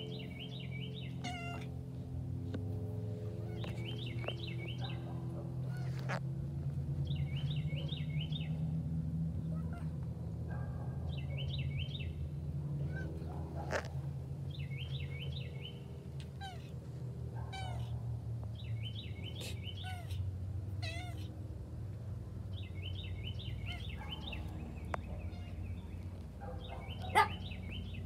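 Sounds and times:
cat meowing: 1.2s - 1.7s, 5.6s - 6.2s, 9.5s - 10.0s, 16.4s - 16.7s, 17.5s - 18.0s, 19.8s - 20.2s, 20.8s - 21.3s.

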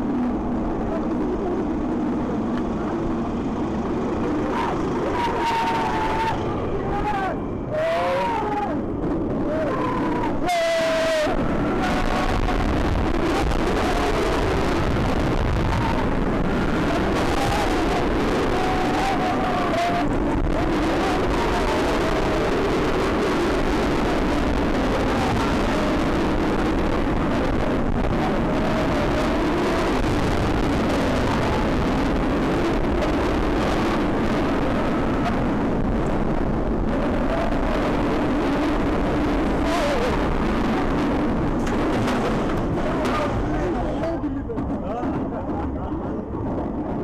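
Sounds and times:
faint wavering whine: 0.0s - 33.6s
roller coaster wheels roaring on track: 0.0s - 47.0s
wind on microphone: 0.0s - 47.0s.

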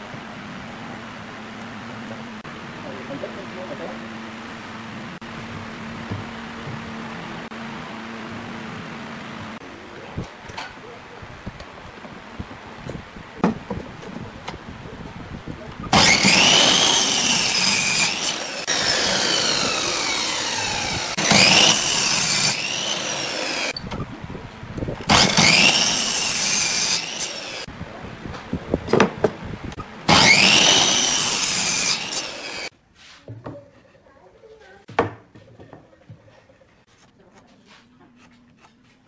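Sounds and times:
mitre saw cutting wood: 15.9s - 23.8s, 25.1s - 27.7s, 30.1s - 32.7s
wooden knock: 34.9s - 36.2s.

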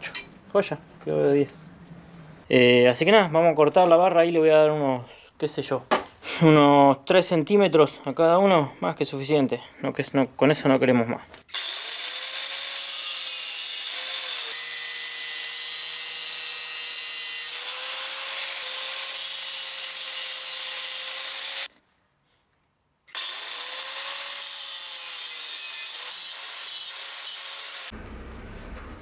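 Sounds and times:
power tool cutting steel: 11.5s - 21.7s, 23.1s - 28.0s.

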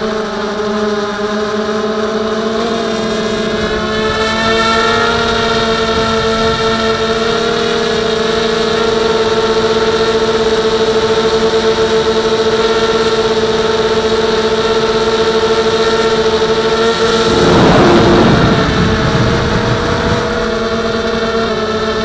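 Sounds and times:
quadcopter motors humming: 0.0s - 22.0s
rough rush of noise: 16.8s - 21.6s.

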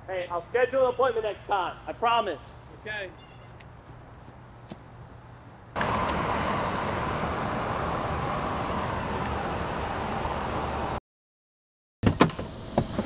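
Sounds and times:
truck driving away: 5.8s - 11.0s.

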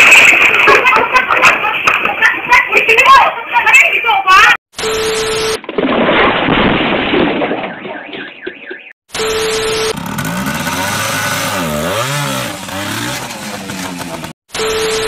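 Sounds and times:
motorcycle engine revving: 9.8s - 14.4s.

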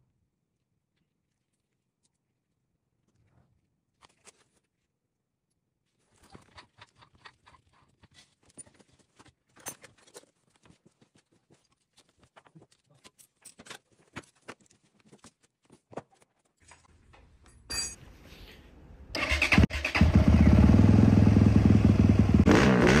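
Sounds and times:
dirt bike engine running: 20.0s - 23.0s.

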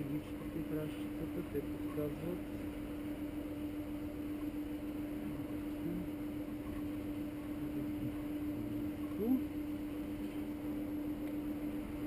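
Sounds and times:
constant low hum: 0.0s - 12.0s.

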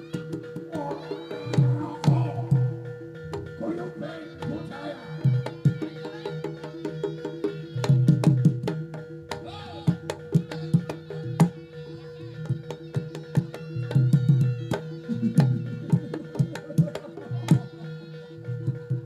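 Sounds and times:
hand drums playing: 0.0s - 19.0s.

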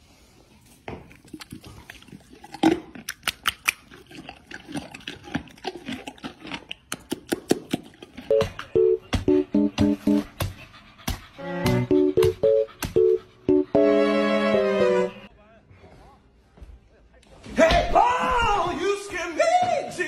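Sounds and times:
horse crunching a carrot: 0.5s - 8.3s
plucked guitar music: 8.3s - 10.2s, 11.6s - 15.2s.

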